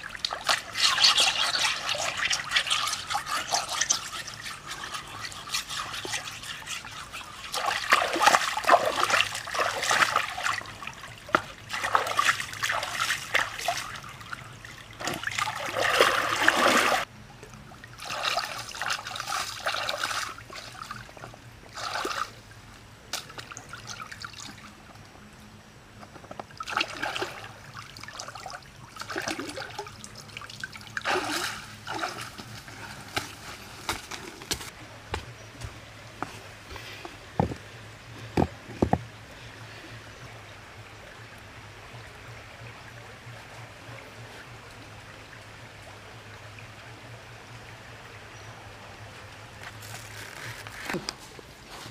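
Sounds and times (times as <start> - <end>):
stream water splashing: 0.0 - 17.1, 17.7 - 24.8, 26.5 - 35.2
hands scrubbing a stone: 0.4 - 9.2.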